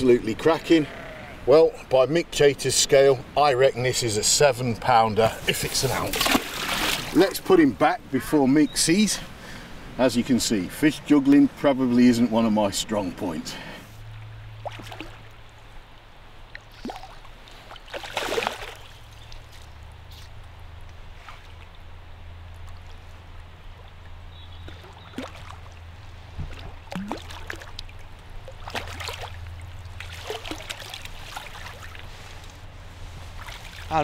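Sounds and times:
fish splashing in water: 6.1 - 7.2, 14.4 - 15.6, 16.5 - 19.6, 23.7 - 32.5, 33.3 - 34.0.

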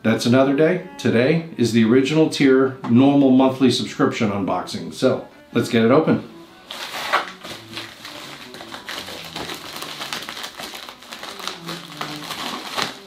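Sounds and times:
soft background music: 0.0 - 13.0
plastic mailer crinkling: 6.7 - 13.0.

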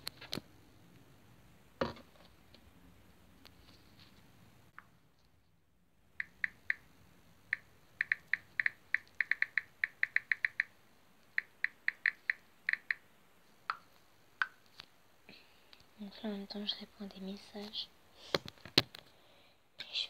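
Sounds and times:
touchscreen keyboard clicks: 6.2 - 6.8, 7.5 - 13.0.

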